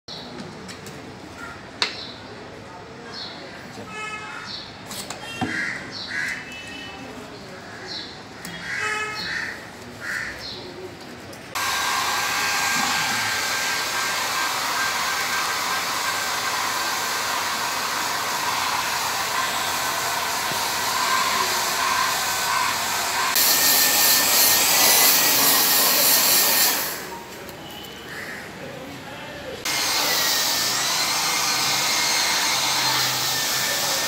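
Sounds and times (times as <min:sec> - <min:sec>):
grooming dryer blowing air: 0:11.6 - 0:27.1, 0:29.7 - 0:34.0.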